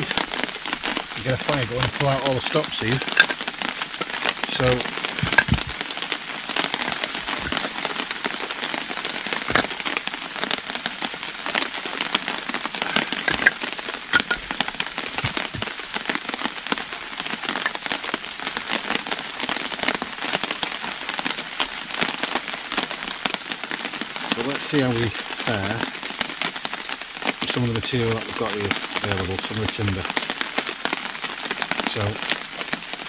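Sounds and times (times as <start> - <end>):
heavy rain on foliage: 0.0 - 33.0
kindling sticks knocking: 2.9 - 5.8, 9.4 - 9.9, 12.8 - 15.7.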